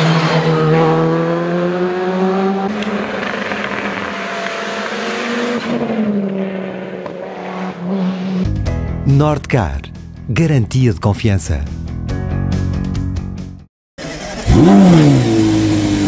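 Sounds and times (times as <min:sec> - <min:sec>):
rally car engine accelerating: 0:00.0 - 0:08.5, 0:14.0 - 0:16.0
turbocharged car engine: 0:14.0 - 0:16.0.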